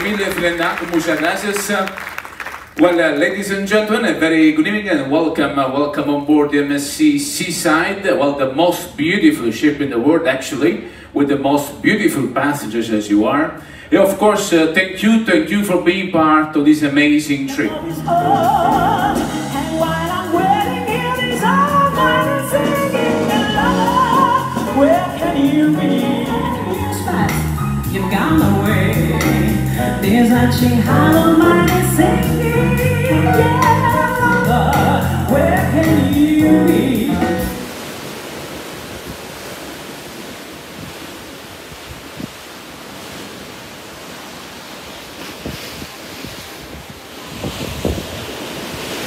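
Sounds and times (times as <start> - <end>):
sea rushing along ship hull: 0.0 - 30.4, 36.1 - 49.0
instrumental accompaniment: 17.6 - 37.6
woman singing with vibrato: 17.7 - 37.5
wind on microphone: 37.0 - 43.5, 44.9 - 49.0.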